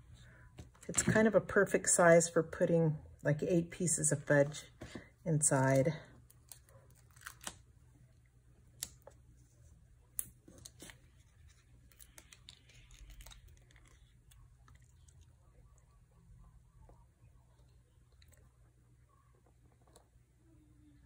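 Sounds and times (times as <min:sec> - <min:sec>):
soft paper rustling: 0:08.9 - 0:15.3.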